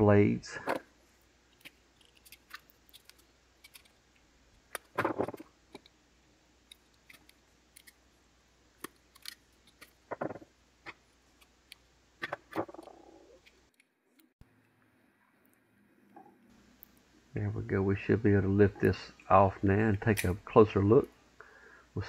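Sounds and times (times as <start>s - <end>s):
small clicks: 1.5s - 5.9s.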